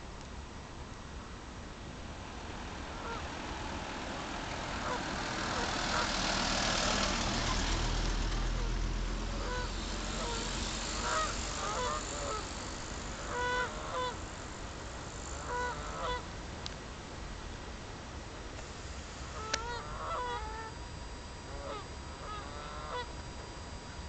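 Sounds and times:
rushing noise: 0:00.0 - 0:24.0
geese honking: 0:03.0 - 0:03.4, 0:04.5 - 0:14.2, 0:15.3 - 0:16.3, 0:19.3 - 0:20.8, 0:21.5 - 0:23.1.

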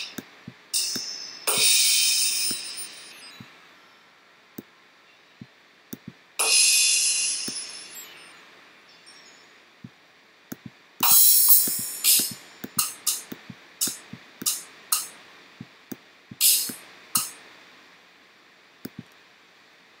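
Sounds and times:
cymbal crashes: 0:00.8 - 0:03.1, 0:06.4 - 0:08.3.

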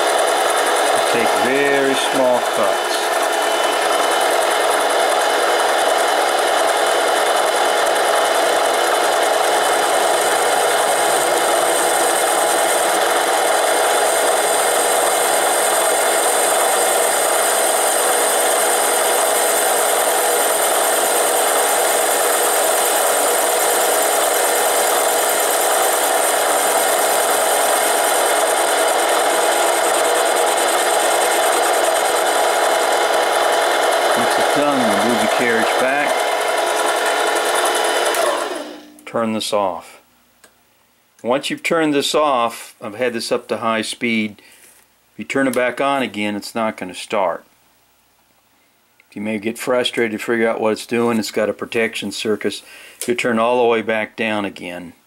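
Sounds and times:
lathe motor whining: 0:00.0 - 0:39.1.

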